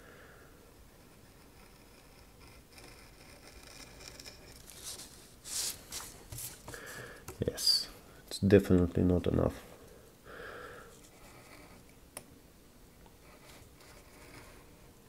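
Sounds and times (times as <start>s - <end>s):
knife scoring paper scratching: 1.0s - 7.1s, 13.2s - 14.7s
paper rustling: 4.6s - 7.1s.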